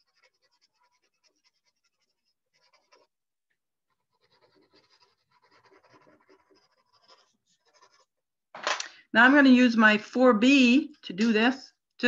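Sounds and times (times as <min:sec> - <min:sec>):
pencil shading on paper: 0:00.0 - 0:08.4.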